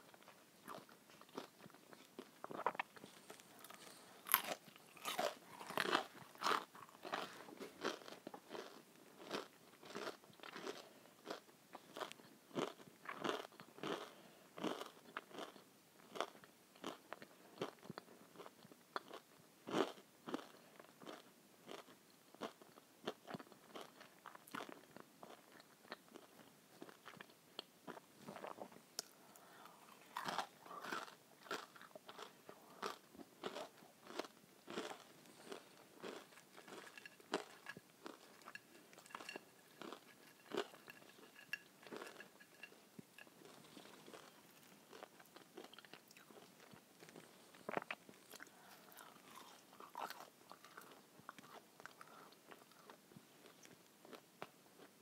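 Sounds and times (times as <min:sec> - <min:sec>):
person chewing crunchy food: 0:00.0 - 0:54.9.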